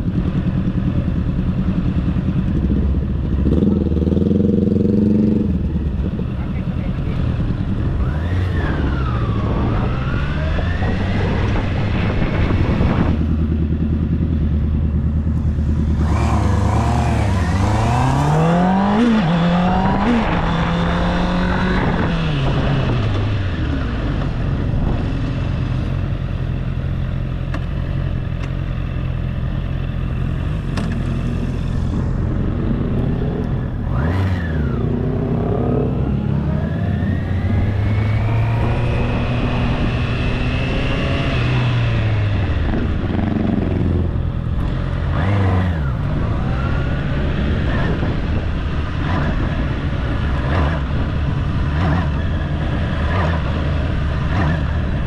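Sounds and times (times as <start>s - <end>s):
motorcycle engine accelerating: 0.0s - 55.0s
wind rush: 7.3s - 25.9s, 31.2s - 44.6s, 45.2s - 55.0s.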